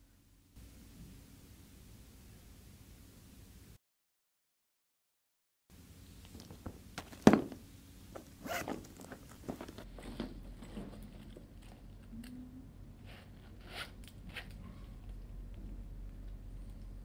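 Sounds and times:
handbag rustling: 6.4s - 11.4s
wallet zip unzipping: 8.4s - 9.8s.

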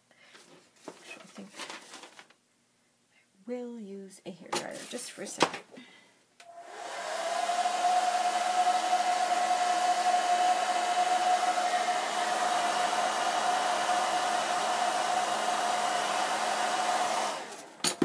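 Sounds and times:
hair dryer running: 6.4s - 18.0s.

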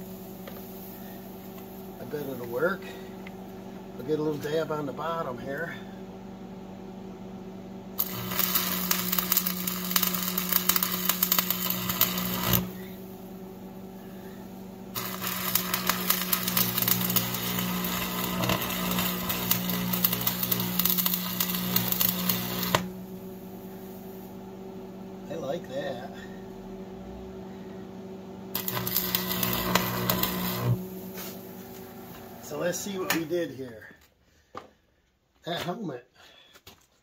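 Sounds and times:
steady low hum: 0.0s - 35.2s
welding arc crackling: 8.0s - 13.1s, 14.9s - 23.2s, 28.5s - 33.4s.

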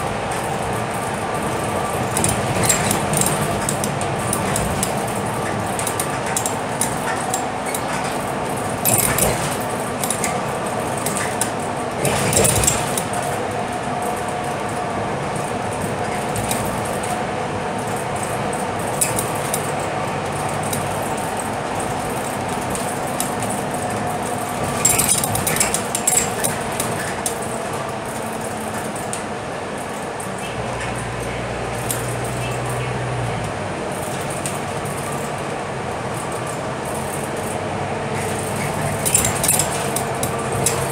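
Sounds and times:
loose fittings rattling: 0.0s - 32.9s, 33.9s - 40.9s
bus engine and road hum: 0.0s - 40.9s.

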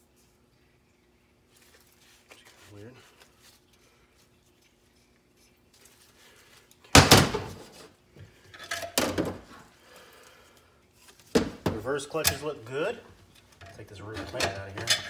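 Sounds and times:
metal parts clattering: 13.6s - 15.0s
metal parts clunking on workbench: 13.6s - 15.0s.

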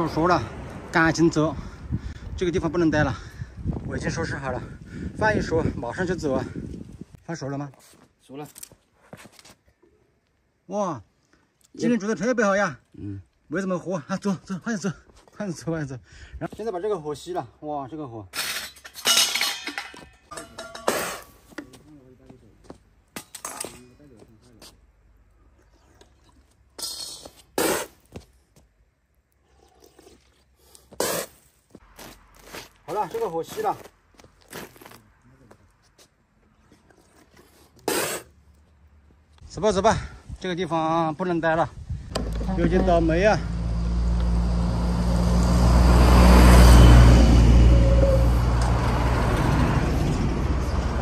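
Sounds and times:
shoe scraping on concrete: 7.8s - 9.6s, 27.0s - 28.7s, 30.7s - 36.2s.

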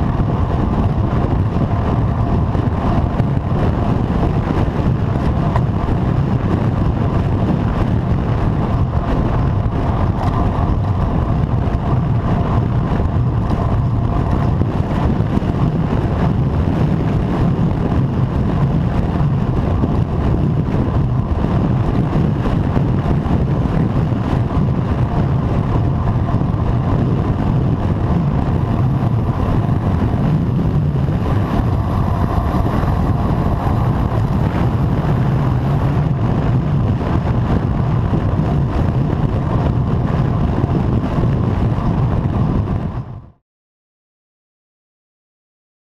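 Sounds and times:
wind rumble: 0.0s - 43.4s.

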